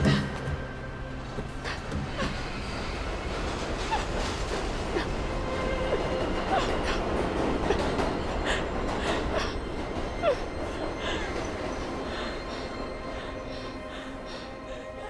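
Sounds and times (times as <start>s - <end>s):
subway train rumble: 0.0s - 15.0s
wheels squealing on rails: 0.5s - 15.0s.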